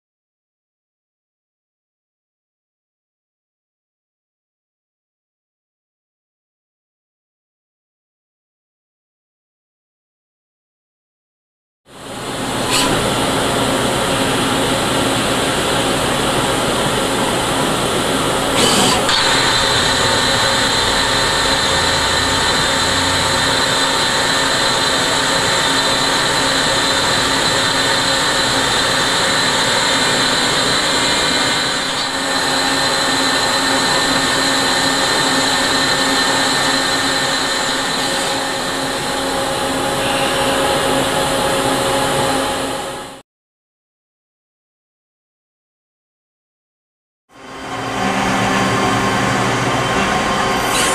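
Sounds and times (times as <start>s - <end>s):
lathe high whine over hum: 11.9s - 43.2s, 47.4s - 50.9s.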